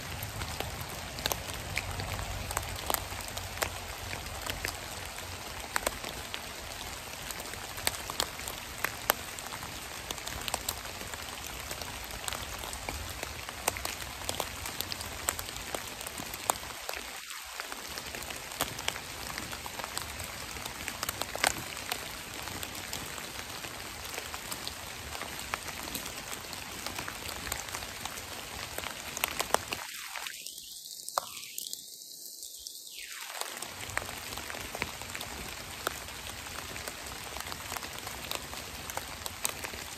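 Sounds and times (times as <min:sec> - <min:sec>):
rain on fallen leaves: 0:00.0 - 0:39.9.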